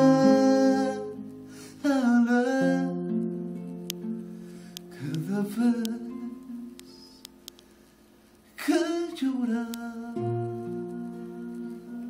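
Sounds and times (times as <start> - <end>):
man singing: 0.0 - 3.3, 4.9 - 7.3, 8.6 - 12.0
acoustic guitar: 0.0 - 12.0.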